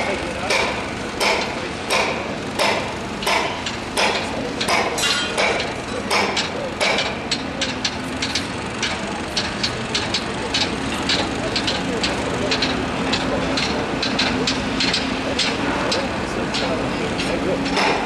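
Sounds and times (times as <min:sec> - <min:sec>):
low hum of machinery: 0:00.0 - 0:18.0
hammer strikes ringing: 0:00.5 - 0:07.5.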